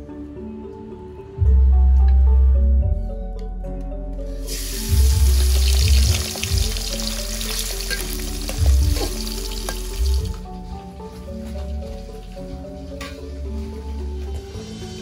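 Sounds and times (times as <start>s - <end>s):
chicken sizzling in oil: 4.4s - 10.4s.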